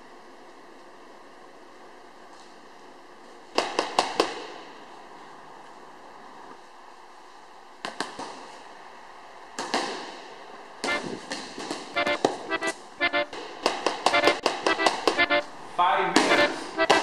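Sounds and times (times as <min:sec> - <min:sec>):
punches smacking boxing mitts: 0:03.5 - 0:04.6, 0:07.8 - 0:08.5, 0:09.6 - 0:10.2, 0:13.3 - 0:15.2
short clipped musical notes: 0:14.1 - 0:15.5, 0:16.3 - 0:17.0.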